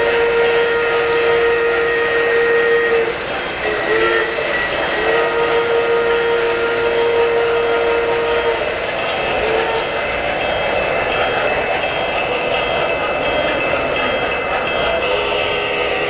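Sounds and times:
model train whistle: 0:00.0 - 0:10.1
model train rolling on track: 0:00.0 - 0:16.0.

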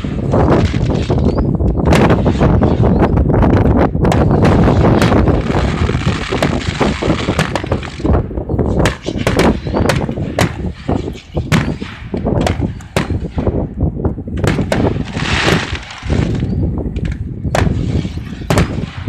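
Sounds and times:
firework shells bursting: 0:04.2 - 0:19.0.

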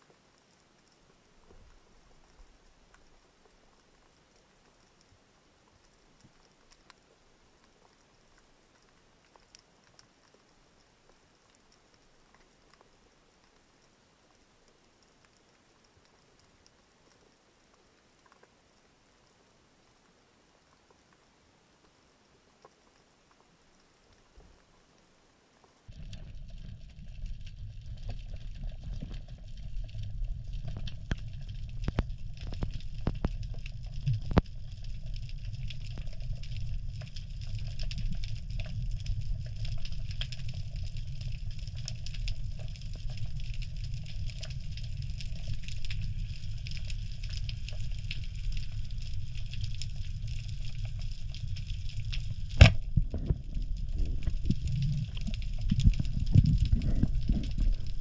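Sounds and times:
underwater low rumble: 0:25.8 - 0:58.0
speargun firing crack: 0:52.6 - 0:52.8.

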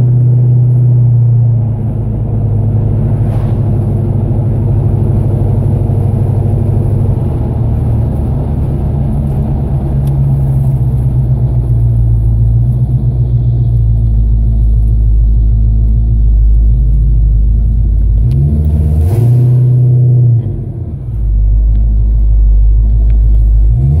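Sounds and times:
car engine and exhaust rumbling: 0:00.0 - 0:24.0.

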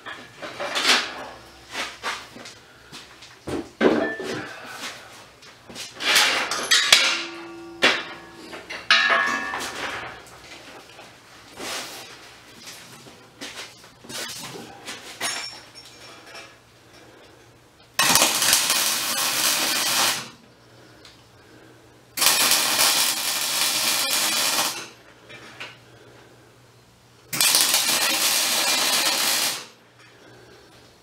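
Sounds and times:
arc welding crackling and buzzing: 0:09.7 - 0:15.0, 0:17.8 - 0:21.2, 0:22.2 - 0:25.8, 0:27.3 - 0:29.8.

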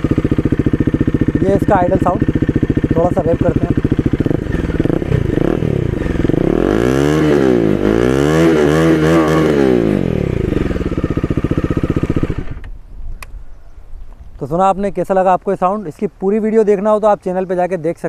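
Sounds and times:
motorcycle engine idling and revving: 0:00.0 - 0:12.8.

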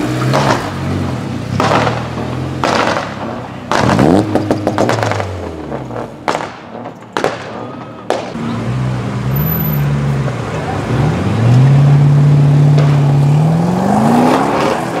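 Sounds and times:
car engine revving loud exhaust: 0:00.0 - 0:15.0
sharp cracks: 0:01.6 - 0:05.2, 0:06.2 - 0:08.4.

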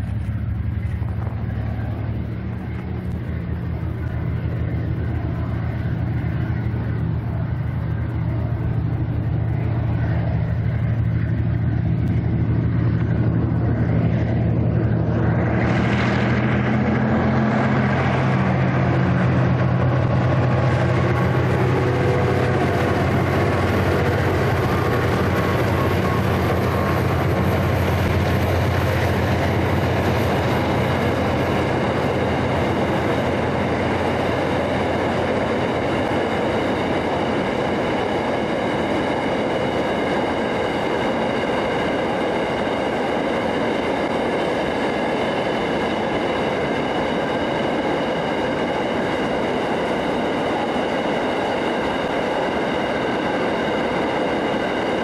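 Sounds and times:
wagon wheels rumbling and ringing: 0:00.0 - 0:41.6
diesel locomotive engines droning: 0:00.0 - 0:55.0.

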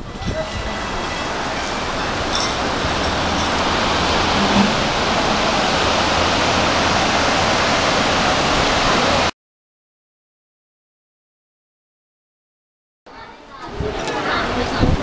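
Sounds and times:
sea surf breaking: 0:00.0 - 0:09.3.

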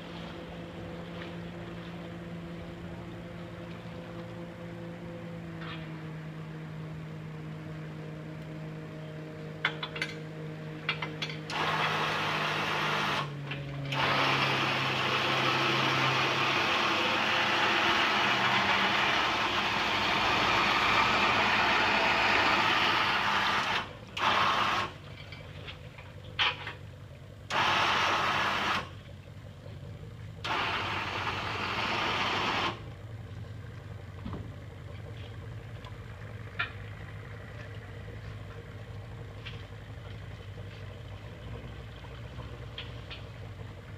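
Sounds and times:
vehicle engine idling: 0:00.0 - 0:43.9
electric tilt rack motor: 0:10.8 - 0:25.0, 0:27.5 - 0:28.9, 0:30.4 - 0:32.8.

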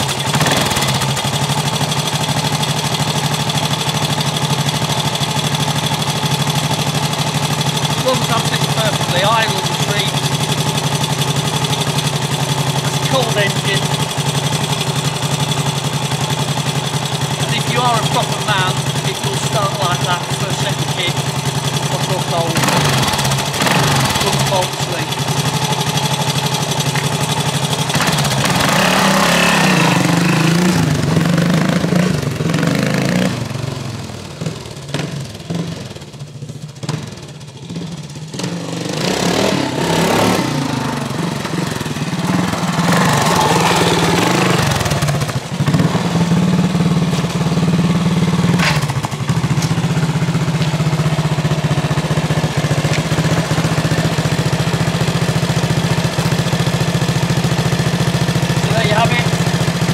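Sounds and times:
motorcycle engine idling: 0:00.0 - 0:59.9
motorcycle engine revving: 0:00.0 - 0:59.9.

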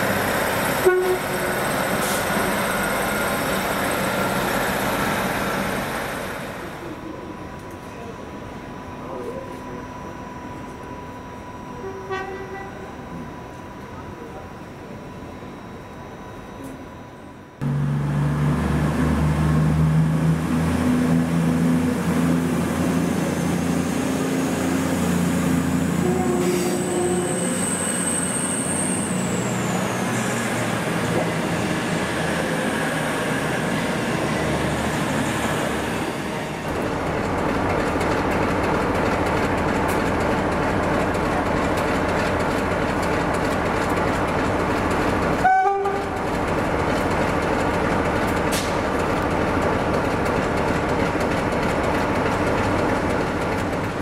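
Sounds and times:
short train horn toot: 0:00.8 - 0:01.5, 0:11.8 - 0:13.0, 0:26.0 - 0:27.6, 0:45.4 - 0:46.2
train wheels rumbling on rails: 0:17.6 - 0:54.0.

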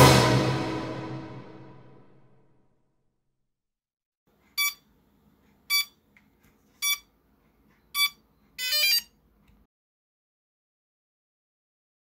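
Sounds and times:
short electronic beeps: 0:04.6 - 0:04.8, 0:05.7 - 0:06.0, 0:06.8 - 0:07.1, 0:07.8 - 0:09.1.

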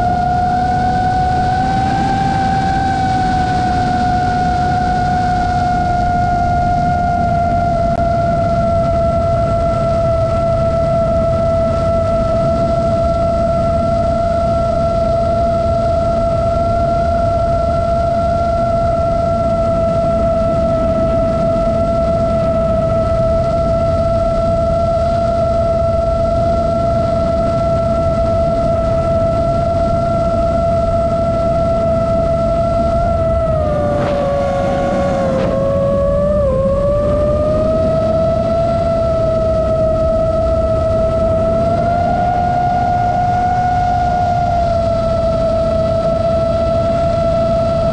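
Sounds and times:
drone propellers droning: 0:00.0 - 0:47.9
low rumble: 0:00.0 - 0:47.9
rush of air: 0:27.1 - 0:47.9.

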